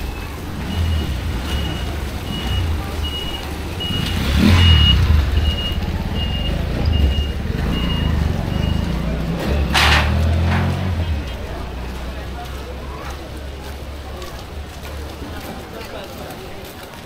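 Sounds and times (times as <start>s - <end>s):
high warning beeps: 0.0s - 9.8s
tricycle engine passing: 0.0s - 17.0s.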